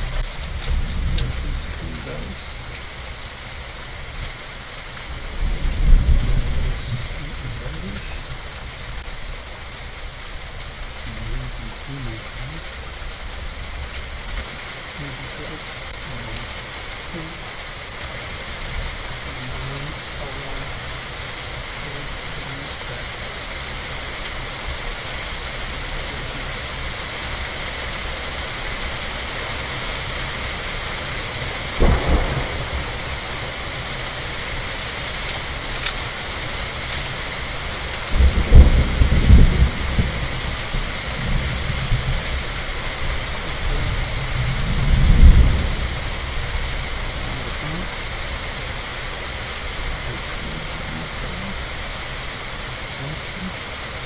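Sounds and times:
thunder clap: 0.0s - 3.1s, 5.1s - 9.2s, 31.7s - 48.1s
heavy rain: 0.0s - 54.0s
thunder rumbling: 0.0s - 54.0s.

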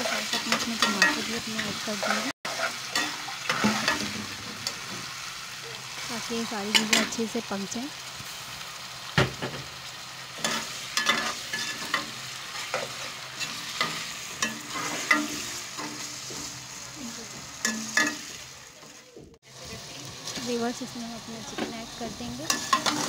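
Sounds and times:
ladle scraping and clinking pot: 0.0s - 4.9s, 10.4s - 16.5s, 17.6s - 18.4s, 22.5s - 23.0s
food sizzling in oil: 0.0s - 23.0s.

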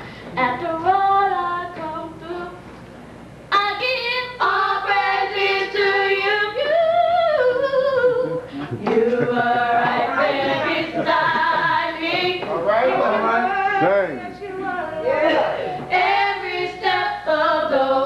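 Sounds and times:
women singing gospel: 0.4s - 2.6s, 3.5s - 18.0s.

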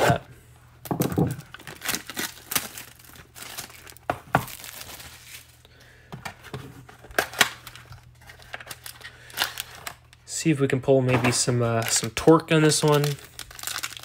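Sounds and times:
plastic wrap tearing and crinkling: 1.2s - 5.6s, 6.9s - 10.2s, 11.3s - 14.0s.

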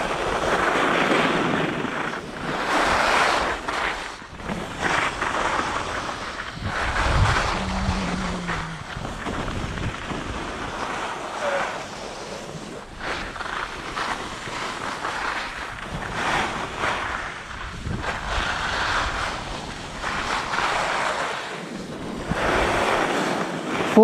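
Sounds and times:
skis scraping on packed snow: 0.0s - 24.0s
wind rushing over microphone: 0.0s - 24.0s.

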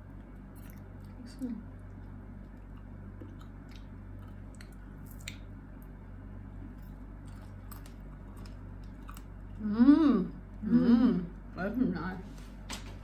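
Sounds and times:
chewing sweets: 0.0s - 9.8s
steady low hum: 0.0s - 13.0s.

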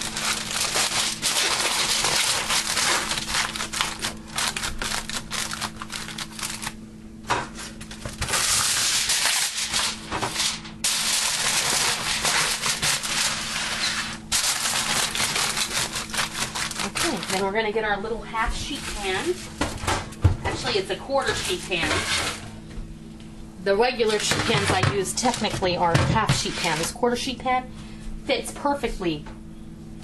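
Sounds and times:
aluminium foil crinkling: 0.0s - 6.8s, 7.6s - 17.7s, 18.6s - 22.4s, 24.0s - 26.9s.

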